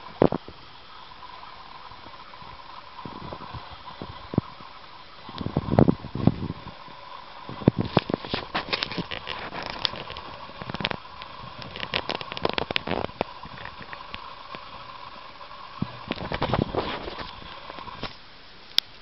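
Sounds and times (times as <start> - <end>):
hamster scratching in bedding: 7.6 - 14.0, 16.1 - 18.1.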